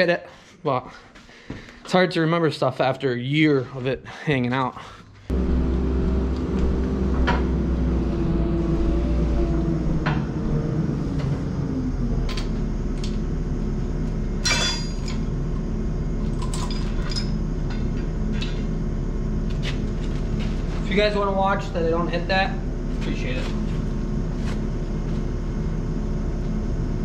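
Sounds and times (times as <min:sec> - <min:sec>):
engine-like drone: 0:05.3 - 0:27.0
ringing metal clank: 0:14.4 - 0:15.2.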